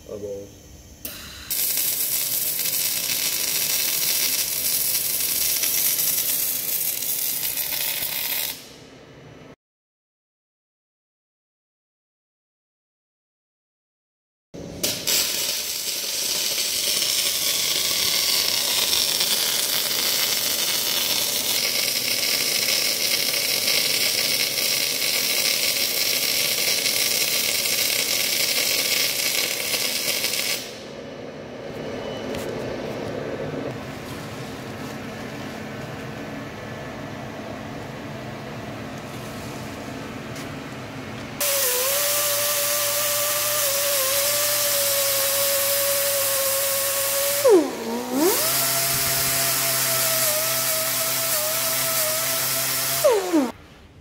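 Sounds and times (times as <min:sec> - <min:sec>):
welding arc crackling hiss: 0:00.1 - 0:08.8, 0:14.7 - 0:30.9, 0:41.4 - 0:53.6
loud whining tone: 0:30.8 - 0:33.7, 0:41.4 - 0:53.6.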